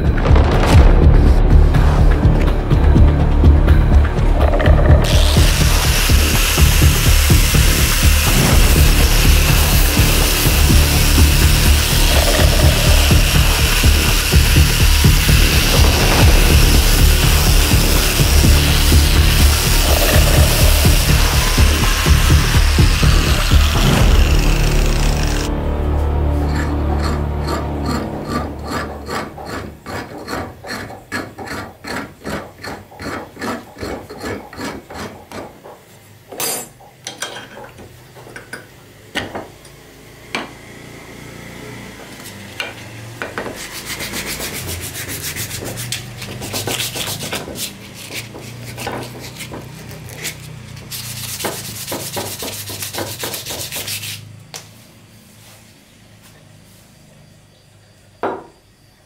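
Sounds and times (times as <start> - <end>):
file rasping on wood: 5.0 - 25.5, 26.4 - 35.7, 43.2 - 54.3
rubbing strokes on wood: 5.0 - 25.5, 43.4 - 55.8.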